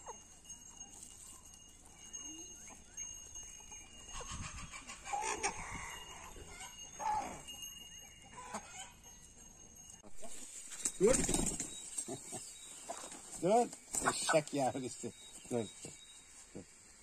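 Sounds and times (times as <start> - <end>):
farmyard animals calling: 0.0 - 9.2, 10.0 - 16.8
faint rural background: 0.0 - 17.0.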